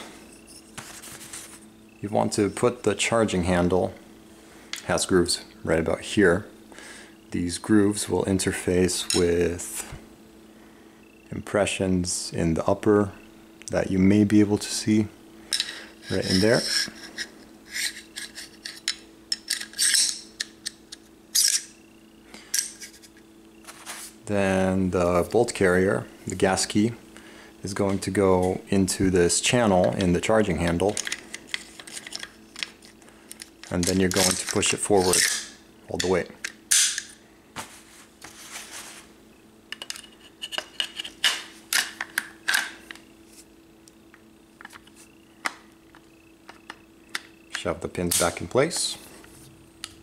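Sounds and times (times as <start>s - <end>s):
metal clicks and clacks of rifle parts: 30.8s - 35.4s.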